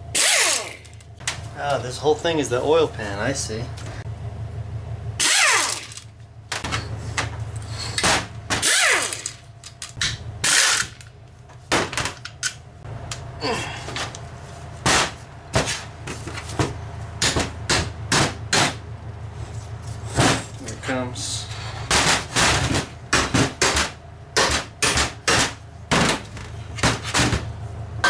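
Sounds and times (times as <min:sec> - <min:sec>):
steady low hum: 0:00.0 - 0:28.0
impact wrench rattling bursts: 0:00.1 - 0:01.1, 0:05.2 - 0:06.9, 0:07.9 - 0:11.1.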